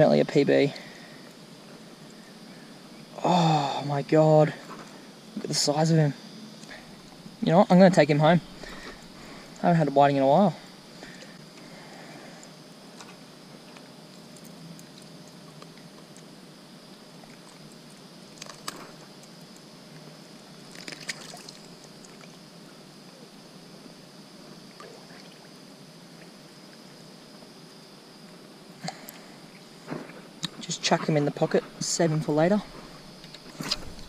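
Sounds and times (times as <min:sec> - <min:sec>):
water splashes: 0:20.8 - 0:22.3.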